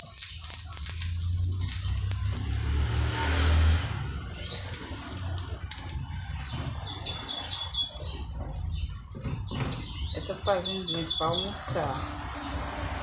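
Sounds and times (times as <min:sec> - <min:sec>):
omelette sizzling in oil: 0:00.0 - 0:13.0.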